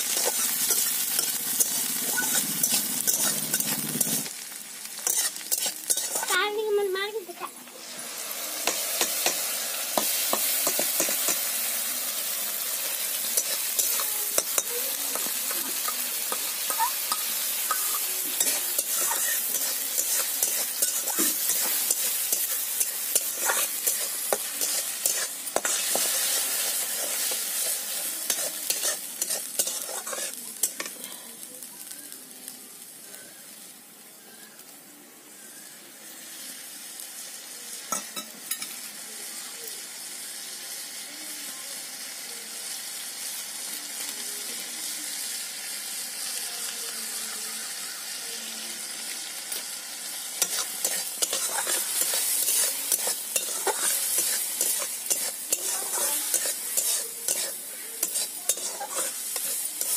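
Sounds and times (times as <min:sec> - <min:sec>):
spice paste sizzling in hot oil: 0:00.0 - 0:59.9
steel spatula scraping pan: 0:05.0 - 0:06.3, 0:13.4 - 0:30.4, 0:50.4 - 0:59.9.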